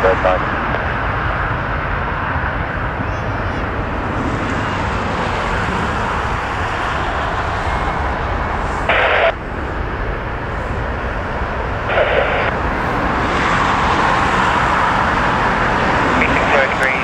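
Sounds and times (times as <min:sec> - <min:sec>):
jet engines rumbling: 0:00.0 - 0:17.0
radio static bursts: 0:08.8 - 0:09.4, 0:11.8 - 0:12.5, 0:16.1 - 0:17.0.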